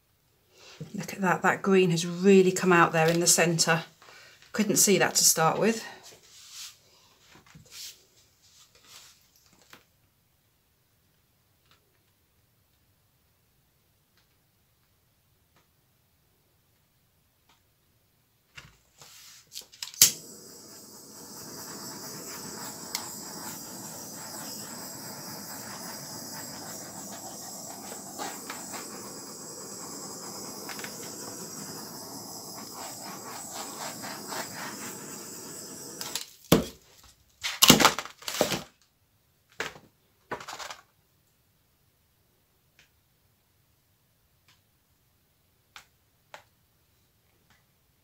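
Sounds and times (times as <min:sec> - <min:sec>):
blowtorch igniter click: 0:19.8 - 0:36.3
blowtorch hissing: 0:20.0 - 0:36.6.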